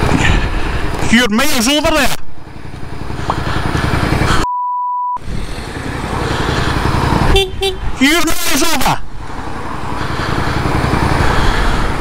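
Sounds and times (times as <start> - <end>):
motorcycle engine: 0.0 - 4.4, 5.2 - 8.1, 9.0 - 12.0
road noise: 0.0 - 4.5, 5.1 - 12.0
censor bleep: 4.4 - 5.2.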